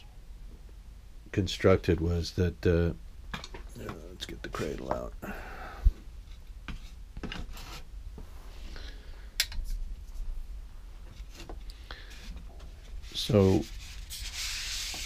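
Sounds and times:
model rubbing and rustling: 0:06.2 - 0:08.8, 0:11.0 - 0:15.0.

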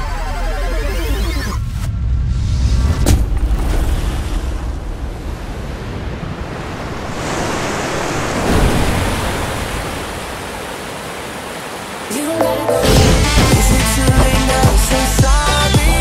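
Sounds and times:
rushing water torrent: 0:05.4 - 0:16.0.

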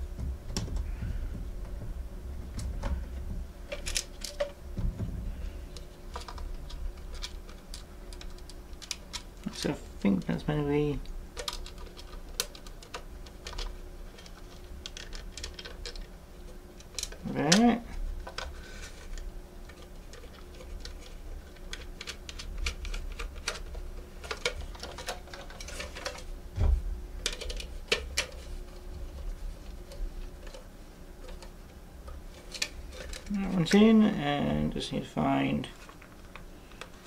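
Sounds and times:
faint steady hum: 0:00.0 - 0:37.0
plastic parts clicking: 0:03.7 - 0:04.9, 0:05.7 - 0:10.4, 0:11.0 - 0:26.3, 0:27.2 - 0:33.9.

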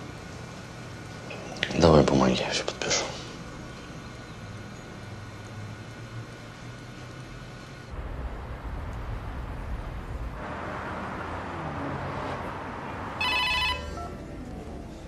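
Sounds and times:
city traffic hum: 0:00.0 - 0:15.0
mobile phone ringtone: 0:13.2 - 0:14.3.

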